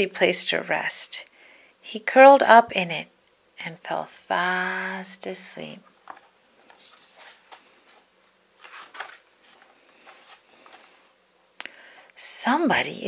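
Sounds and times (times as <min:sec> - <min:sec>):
paper page turning: 0:06.0 - 0:11.1.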